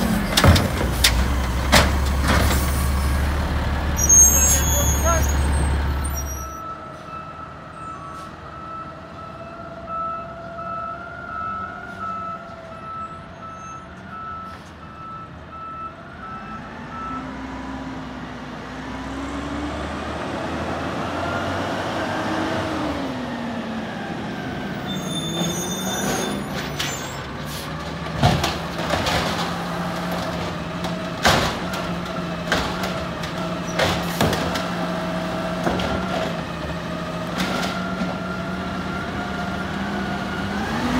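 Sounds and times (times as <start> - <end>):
diesel engine revving: 0.0 - 9.8, 16.0 - 40.9.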